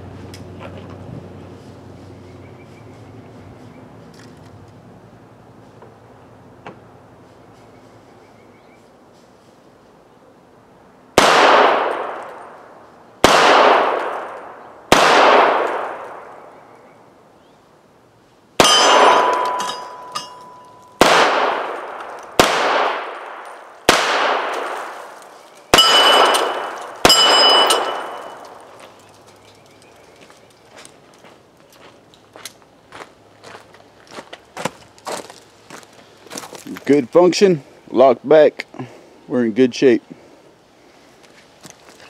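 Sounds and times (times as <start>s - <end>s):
rifle shots echoing: 11.2s - 12.6s, 13.2s - 16.5s, 18.6s - 28.7s
bullet clanging on steel plate: 18.6s - 21.0s, 25.8s - 28.6s.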